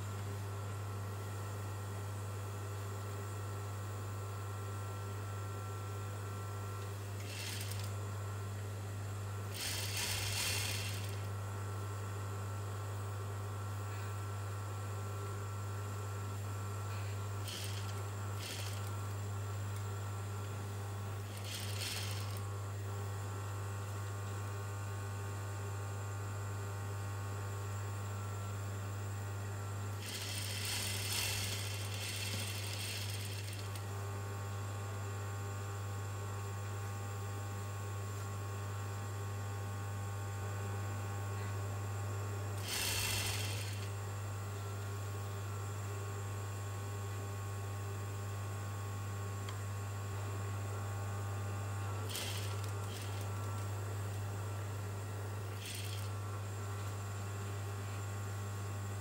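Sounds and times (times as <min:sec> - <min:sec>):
sewing machine stitching: 0:07.2 - 0:08.0, 0:09.5 - 0:11.3, 0:17.4 - 0:19.1, 0:21.2 - 0:22.5, 0:30.0 - 0:33.9, 0:42.6 - 0:43.9, 0:52.0 - 0:53.7, 0:55.6 - 0:56.2
sewing machine motor humming: 0:07.2 - 0:08.2, 0:09.4 - 0:11.4, 0:17.4 - 0:19.3, 0:20.9 - 0:22.6, 0:29.9 - 0:34.0, 0:42.6 - 0:44.0, 0:51.9 - 0:53.9, 0:55.4 - 0:56.4.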